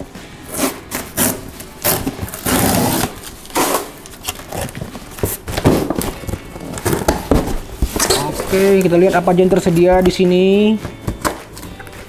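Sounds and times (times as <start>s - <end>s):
packing tape ripping off: 0.5s - 8.9s
cardboard rubbing and scraping: 0.5s - 10.2s.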